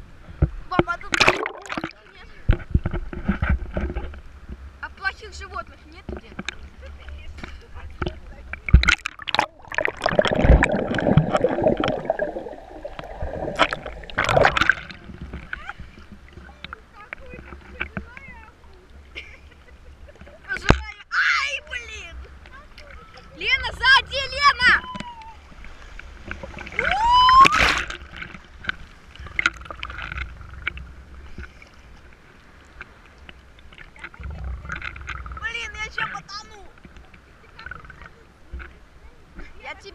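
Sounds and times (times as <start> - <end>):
wave splashing: 0.0 - 39.9
water sloshing: 0.3 - 39.9
sea waves washing: 0.7 - 2.6, 4.3 - 20.6
muffled underwater gurgling: 1.0 - 2.0, 7.8 - 18.3
small underwater clicks: 6.0 - 18.9, 27.4 - 36.1
person yelling: 26.8 - 27.5.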